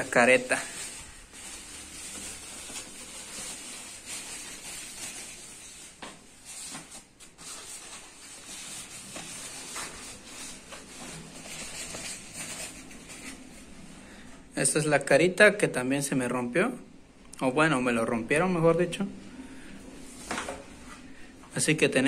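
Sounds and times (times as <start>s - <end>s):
bubble wrap rustling: 0.0s - 13.9s.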